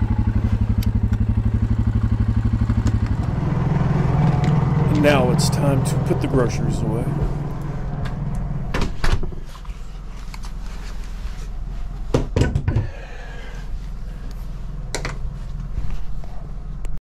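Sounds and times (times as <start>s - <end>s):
steady low hum: 0.0s - 17.0s
knocks and bumps of handling: 12.1s - 12.9s.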